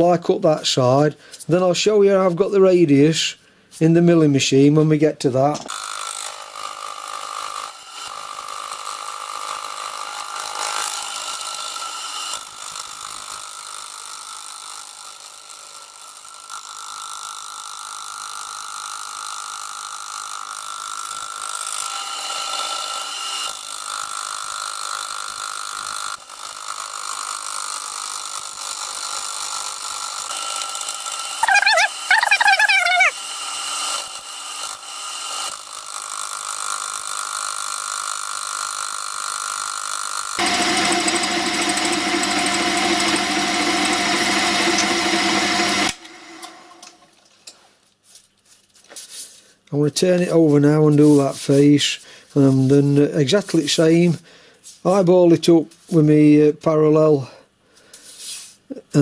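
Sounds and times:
brief warbling sound: 0:31.4 - 0:33.1
milling machine whirring: 0:40.4 - 0:47.1.

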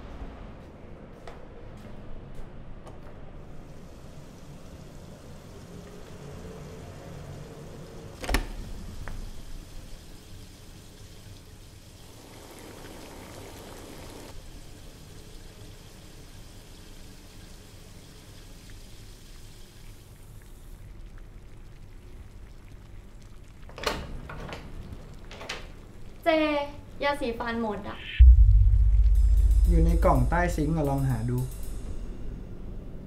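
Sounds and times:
low room hum: 0:14.0 - 0:33.0.

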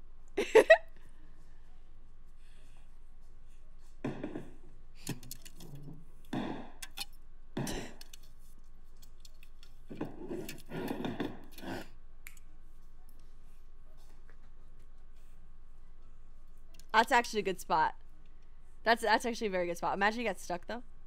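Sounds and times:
soft thumps and knocks: 0:04.0 - 0:04.7
bumping furniture and door: 0:09.9 - 0:11.6.

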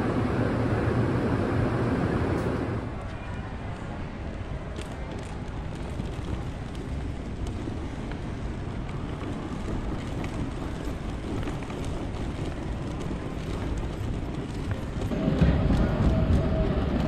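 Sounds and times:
low rumble of terminal: 0:00.0 - 0:17.0.

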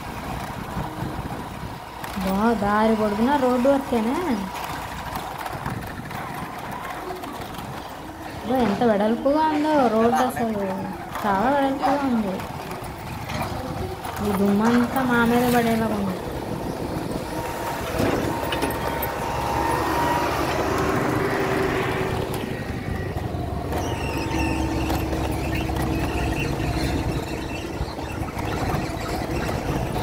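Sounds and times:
truck passing close: 0:00.0 - 0:30.0
vehicle on dirt road: 0:00.0 - 0:30.0.

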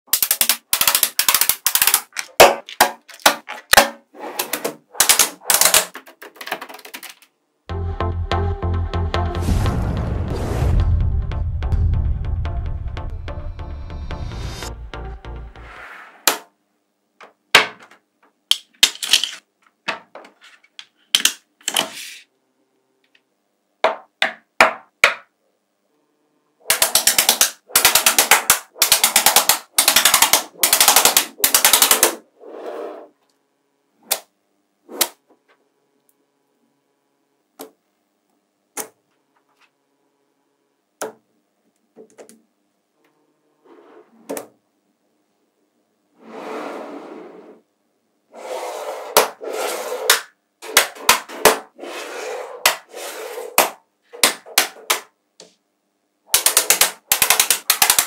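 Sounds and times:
magnetic balls clicking together: 0:00.1 - 0:02.4, 0:26.7 - 0:32.2, 0:56.3 - 0:58.0.

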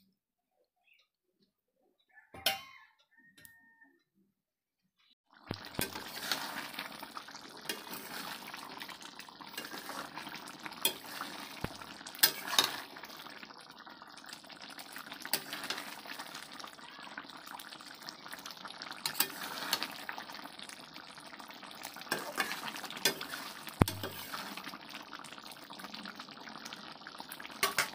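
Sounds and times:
curry bubbling in a pan: 0:05.3 - 0:27.9
metal spatula scraping a pan: 0:05.8 - 0:06.8, 0:07.6 - 0:08.6, 0:09.5 - 0:13.0, 0:19.0 - 0:20.0, 0:22.1 - 0:24.6, 0:27.6 - 0:27.9.

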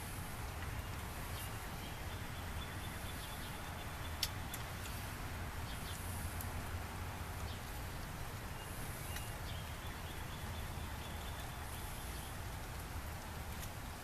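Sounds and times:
faint bird chirps: 0:08.5 - 0:12.4.

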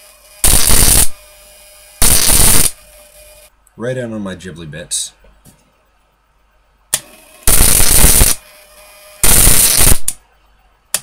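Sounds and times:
crackling electric sparks: 0:00.0 - 0:01.2, 0:02.0 - 0:02.8, 0:07.4 - 0:08.4, 0:09.2 - 0:10.2
buzzing relay: 0:00.0 - 0:03.5, 0:06.9 - 0:10.2.

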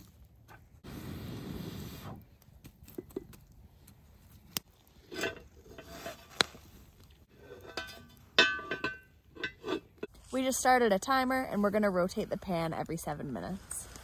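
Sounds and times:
wood rustling in fire: 0:00.0 - 0:10.8
cast iron pan scraping on stones: 0:04.9 - 0:10.6.

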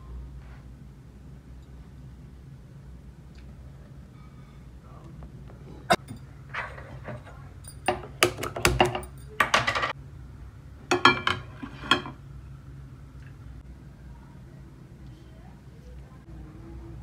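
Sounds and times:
low steady hum: 0:00.0 - 0:17.0
metal kitchenware clinking: 0:05.9 - 0:10.0, 0:10.9 - 0:12.2.

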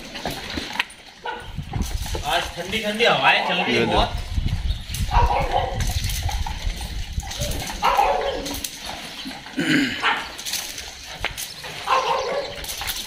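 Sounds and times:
wind rumble on microphone: 0:01.2 - 0:02.9, 0:03.7 - 0:08.7
dog barking and whining: 0:05.1 - 0:05.8, 0:07.3 - 0:08.6, 0:11.8 - 0:12.6.

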